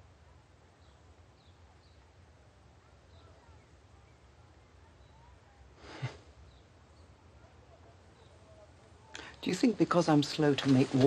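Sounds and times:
rustling: 0:09.2 - 0:11.0.

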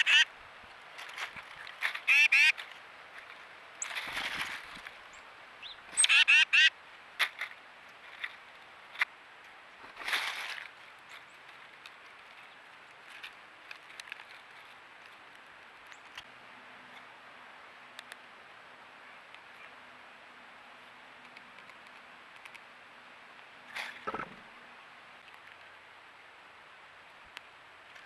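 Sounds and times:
bird nasal quacking calls: 0:00.0 - 0:00.3, 0:02.0 - 0:02.6, 0:06.0 - 0:06.7
rustling bursts: 0:01.0 - 0:05.0.

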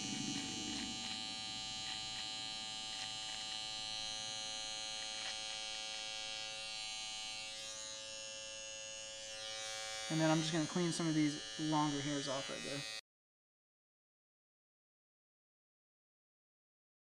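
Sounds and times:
cordless trimmer buzzing: 0:00.0 - 0:13.0.

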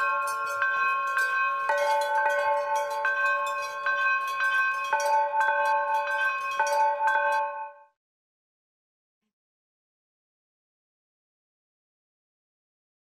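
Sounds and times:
metal chimes ringing: 0:00.0 - 0:08.0.

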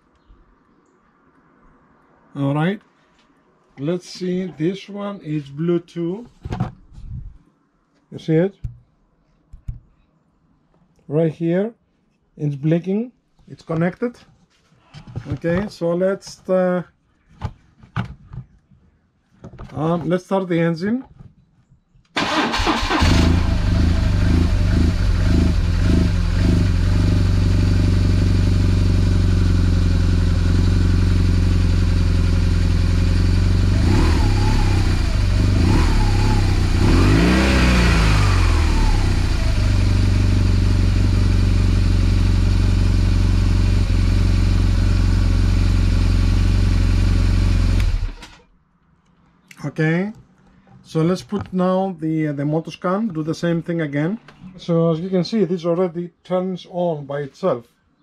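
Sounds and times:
motorcycle engine idling and revving: 0:22.3 - 0:48.4.

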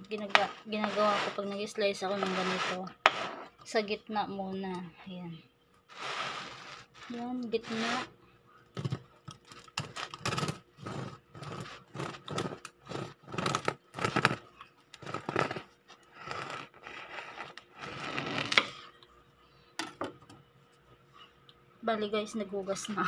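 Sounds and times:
bread knife sawing through loaf: 0:00.3 - 0:03.5, 0:05.9 - 0:08.1, 0:10.4 - 0:14.4, 0:15.0 - 0:18.7.

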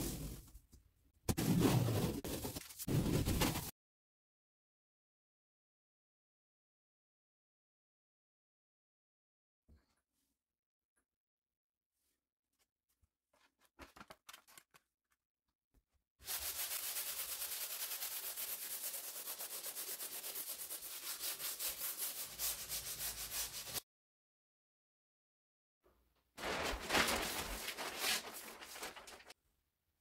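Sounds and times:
sandpaper rasping on wall: 0:16.2 - 0:23.8.

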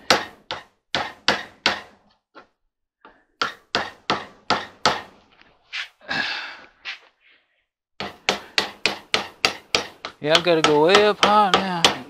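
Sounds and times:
hammer tapping a scraper: 0:00.0 - 0:02.0, 0:03.4 - 0:05.1, 0:08.0 - 0:12.0.

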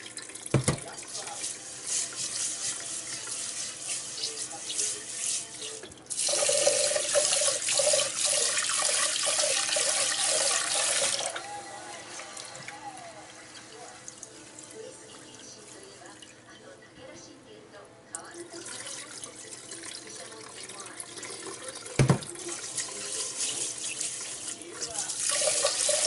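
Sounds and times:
tap running into pot: 0:00.1 - 0:02.3, 0:21.8 - 0:22.4.

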